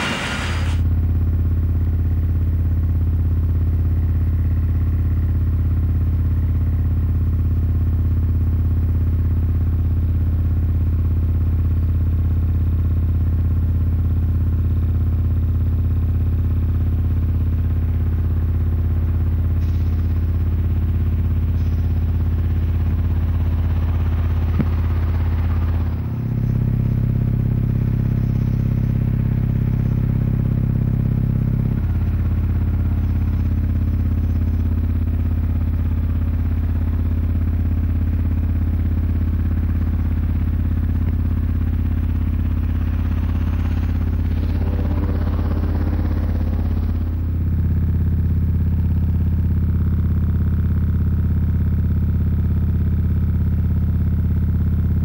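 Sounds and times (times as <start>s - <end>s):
low electrical hum: 19.4s - 48.6s.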